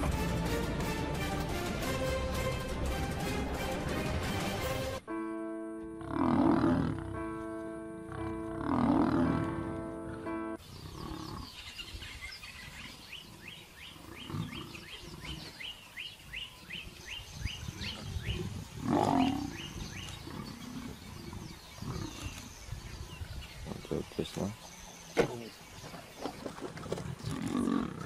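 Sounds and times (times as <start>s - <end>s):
lions growling and snarling: 6.0s - 7.2s, 8.1s - 15.8s, 17.7s - 23.8s, 25.9s - 28.0s.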